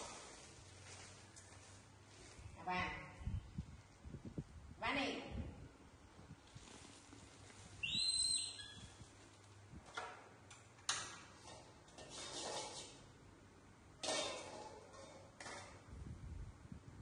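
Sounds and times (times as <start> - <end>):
baby monkey squeaking call: 7.8 - 8.9.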